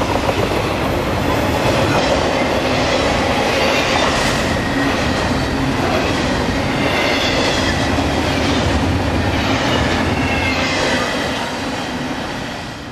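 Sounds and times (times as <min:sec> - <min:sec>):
train wheels rolling on rails: 0:00.0 - 0:12.9
faint high wheel squeal: 0:09.4 - 0:11.2.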